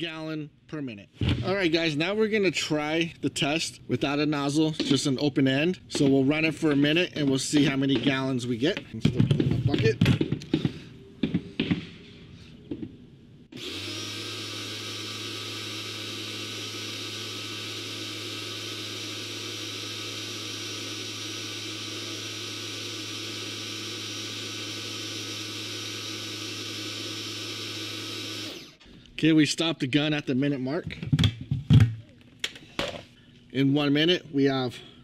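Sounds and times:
pressure washer motor hum: 13.5s - 28.8s.

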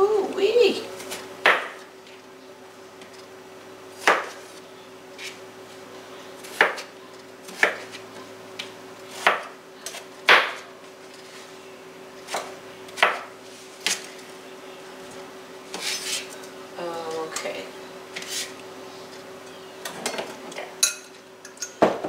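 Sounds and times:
knife chopping potato: 1.0s - 1.8s, 4.0s - 4.4s, 6.4s - 6.9s, 7.5s - 8.0s, 8.6s - 10.7s, 12.3s - 14.0s.

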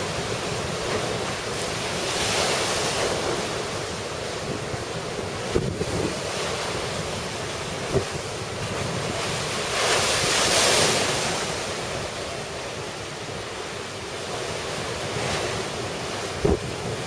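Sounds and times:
wind on microphone: 0.0s - 12.2s, 15.2s - 17.0s
surf crashing against seawall: 0.0s - 17.0s.

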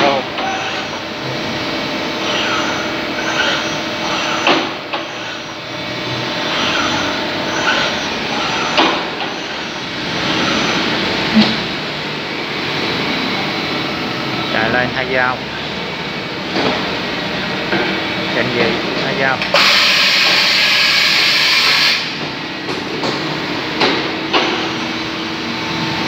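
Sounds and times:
milling spindle whine: 0.0s - 11.3s
machine running noise: 0.0s - 26.0s.

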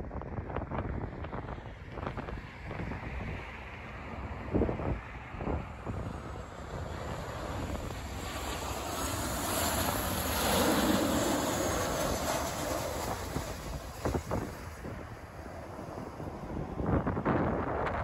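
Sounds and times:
jet engines passing overhead: 0.0s - 18.0s
wind buffeting microphone: 0.0s - 18.0s
high jet whine falling in pitch: 5.4s - 18.0s.

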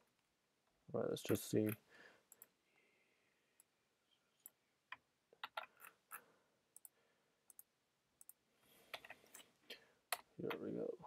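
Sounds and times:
keyboard and mouse clicks: 4.4s - 9.5s.

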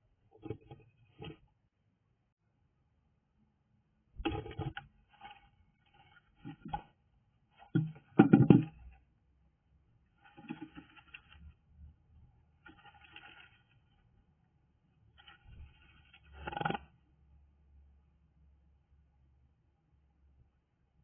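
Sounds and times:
bird scratching nest material: 10.2s - 11.6s, 12.6s - 14.1s, 15.1s - 16.9s.

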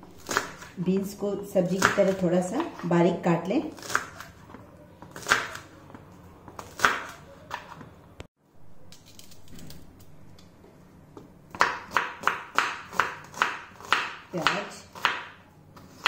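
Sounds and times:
onion being peeled: 8.7s - 10.4s
knife chopping on wooden board: 11.5s - 16.0s.

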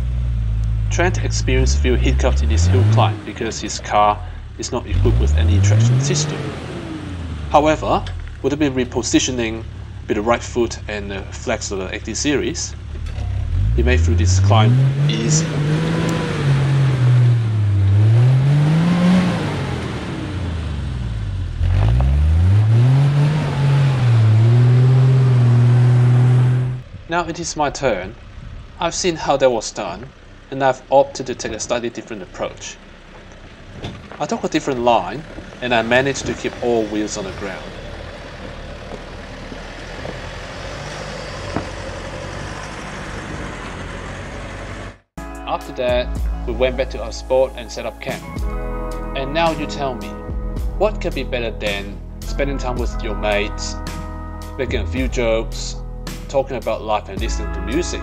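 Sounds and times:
engine revving: 0.0s - 45.1s, 45.9s - 58.0s
rumbling track noise: 0.0s - 45.1s.

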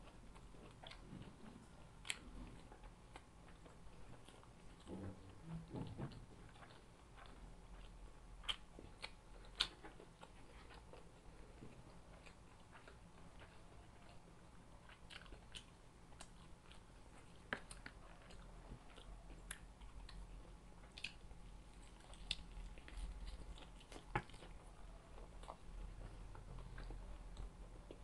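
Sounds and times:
person chewing and biting: 6.1s - 14.2s, 14.8s - 28.0s.

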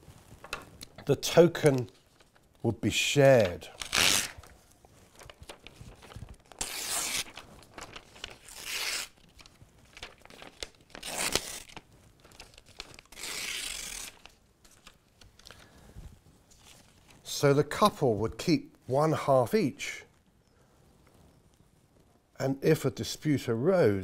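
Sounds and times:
paper crinkling: 0.3s - 2.7s, 3.3s - 15.8s, 16.4s - 17.3s
paper tearing: 3.8s - 4.5s, 5.2s - 15.0s.

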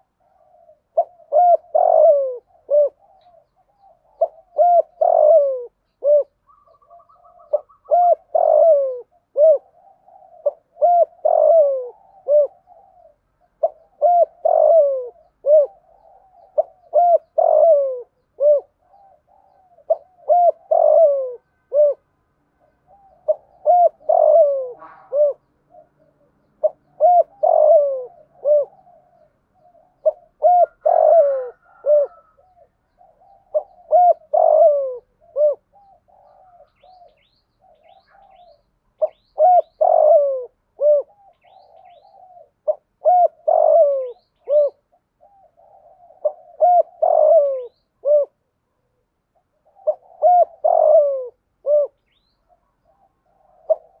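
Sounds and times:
small birds chirping: 0.0s - 48.3s, 49.3s - 54.0s
dove cooing: 0.0s - 54.0s.

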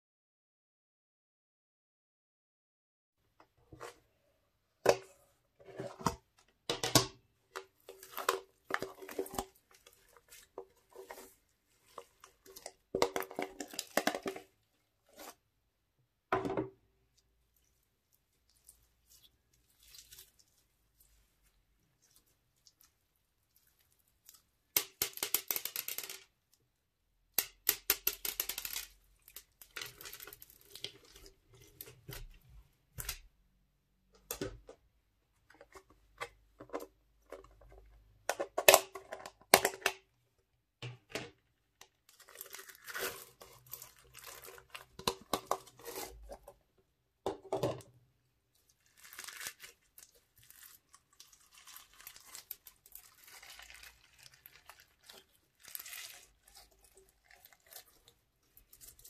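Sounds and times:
crunchy slime crackling and popping: 48.8s - 59.0s.

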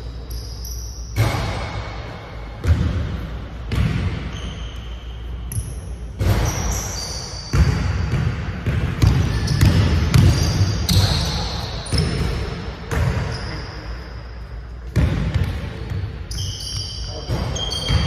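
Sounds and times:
basketball bouncing on wooden floor: 2.6s - 4.4s, 7.5s - 13.4s, 14.9s - 16.1s.

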